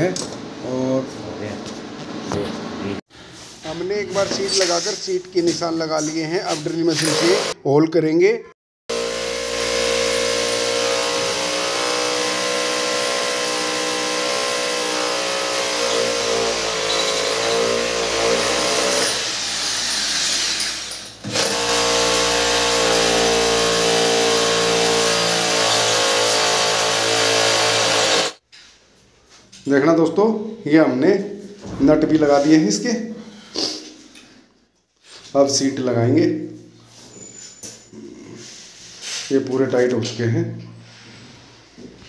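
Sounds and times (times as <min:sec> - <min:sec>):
electric drill boring into tile: 0:08.9 - 0:28.4.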